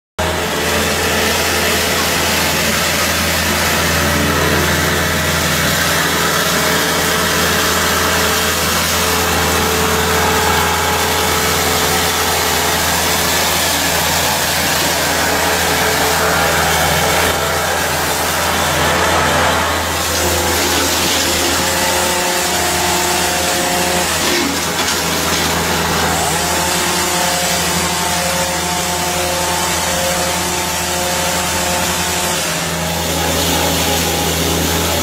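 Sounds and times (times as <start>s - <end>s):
excavator engine hum: 0.2s - 35.0s
hedge trimmer hissing: 0.4s - 27.9s.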